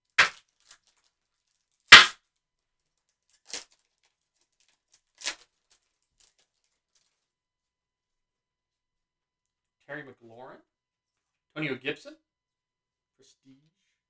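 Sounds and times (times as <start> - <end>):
foil wrapper crackling: 0.3 - 1.8, 2.8 - 7.3.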